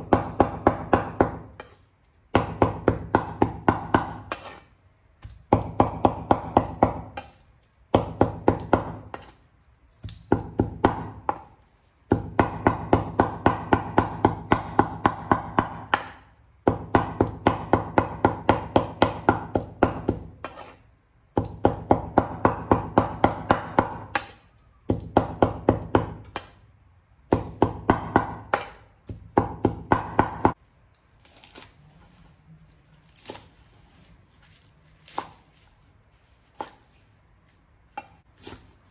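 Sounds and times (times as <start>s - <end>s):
cleaver chopping meat on wooden board: 0.0s - 4.6s, 5.2s - 9.3s, 10.0s - 20.7s, 21.4s - 26.6s, 27.3s - 30.6s.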